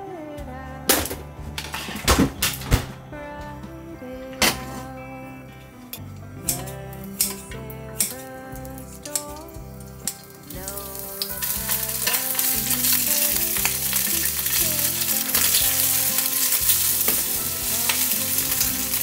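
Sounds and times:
food sizzling in oil: 9.1s - 19.0s.

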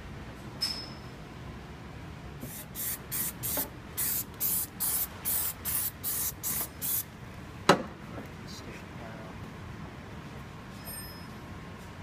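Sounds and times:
aerosol can spraying: 2.4s - 7.0s.

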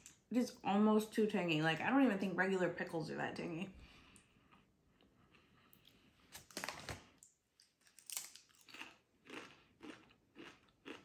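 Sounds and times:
person crunching chips: 6.3s - 11.0s.

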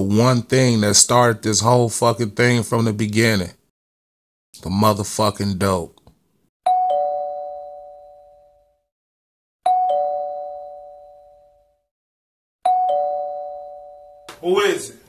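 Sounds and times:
two-note doorbell chime: 6.7s - 8.8s, 9.7s - 11.8s, 12.6s - 14.3s.

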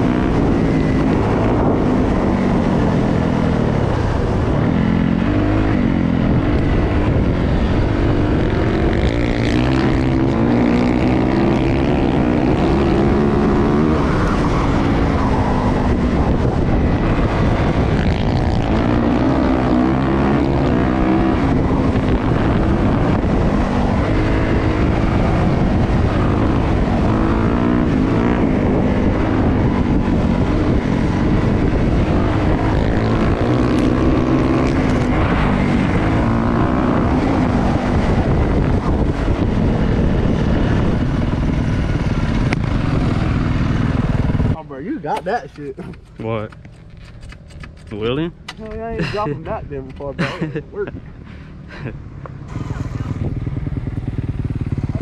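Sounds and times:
dirt bike engine revving: 0.0s - 41.1s.

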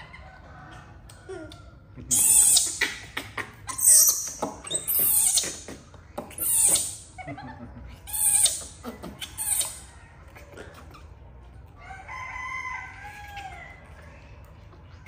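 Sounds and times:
rooster crowing: 11.7s - 14.2s.

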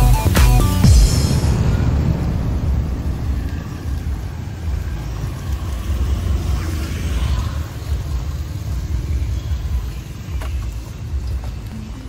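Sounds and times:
street traffic rumble: 0.0s - 12.0s
vehicle passing: 1.1s - 10.3s.

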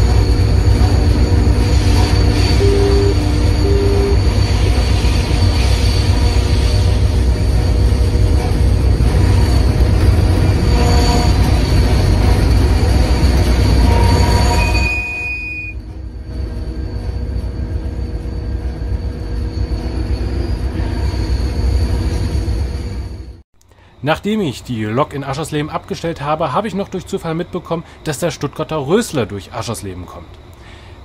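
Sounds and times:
high wheel squeals: 0.0s - 23.2s
train rumbling on rails: 0.0s - 31.0s.

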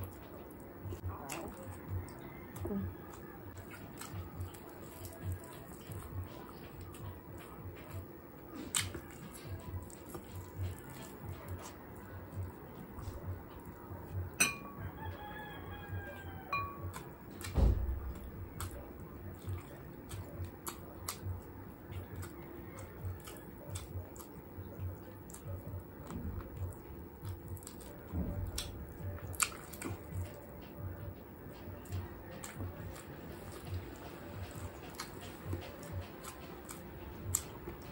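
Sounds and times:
close-up chewing: 0.0s - 37.9s
rooster crowing: 1.6s - 3.6s, 14.4s - 17.1s, 22.1s - 23.4s
soft thuds: 17.5s - 18.4s.

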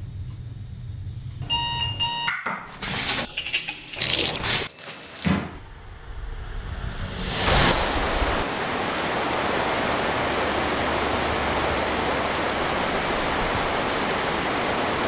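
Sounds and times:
river rapids rushing: 7.5s - 15.0s.

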